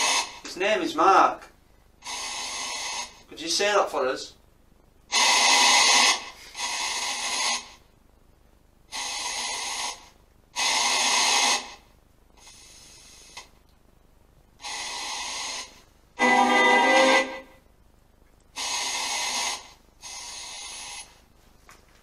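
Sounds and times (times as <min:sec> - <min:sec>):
radio static bursts: 0:00.0 - 0:04.4, 0:05.1 - 0:07.9, 0:08.9 - 0:13.6, 0:18.5 - 0:21.2.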